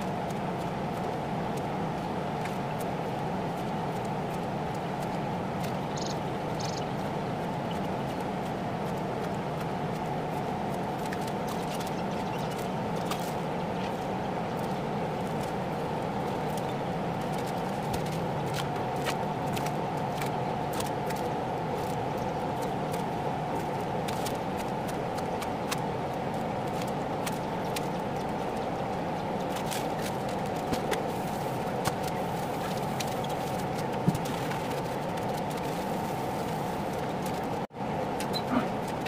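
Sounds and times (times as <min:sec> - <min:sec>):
droning background noise: 0:00.0 - 0:39.0.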